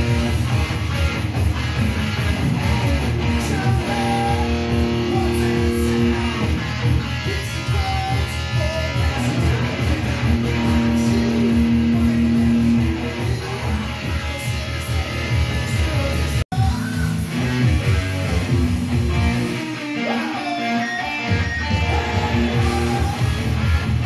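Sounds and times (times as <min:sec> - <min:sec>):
electric guitar through amp: 0:00.0 - 0:24.0.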